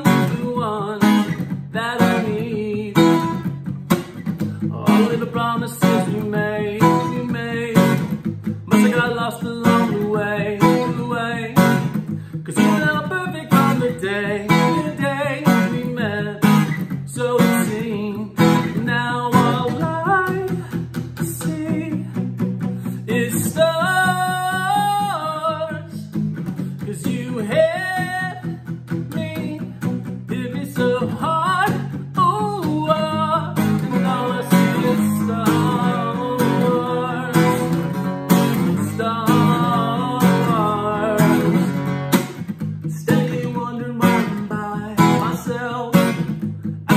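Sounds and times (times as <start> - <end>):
man singing: 0.0 - 3.6, 4.4 - 46.9
acoustic guitar strumming: 0.0 - 46.9.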